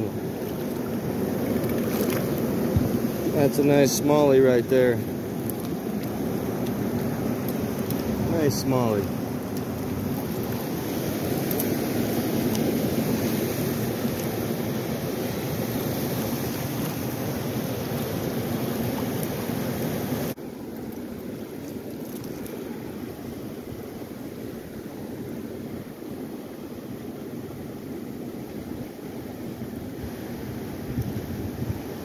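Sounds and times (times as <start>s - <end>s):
river rushing over rocks: 0.0s - 20.7s.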